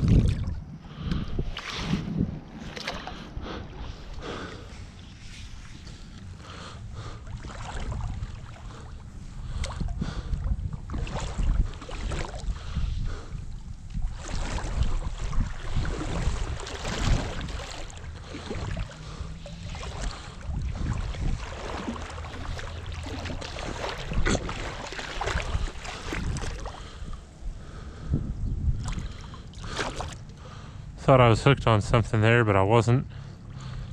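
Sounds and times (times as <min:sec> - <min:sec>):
wind rumble on microphone: 0:00.0 - 0:32.5
creek water splashing: 0:01.4 - 0:27.8, 0:28.8 - 0:30.8
wet rope hauled in: 0:14.0 - 0:26.8.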